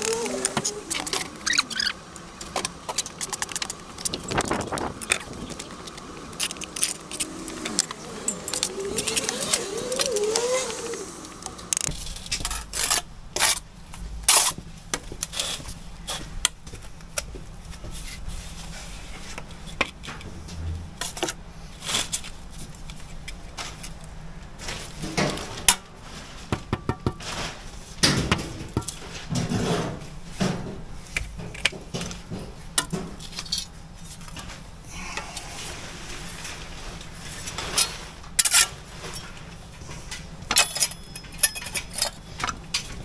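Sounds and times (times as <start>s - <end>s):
trowel clinking and scraping bricks: 2.6s - 10.8s.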